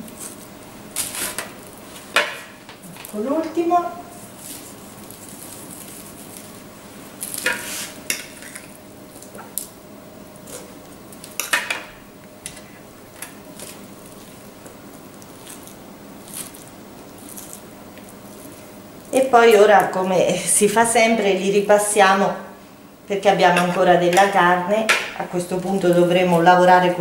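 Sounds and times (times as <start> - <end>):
meat squishing: 13.5 - 19.1.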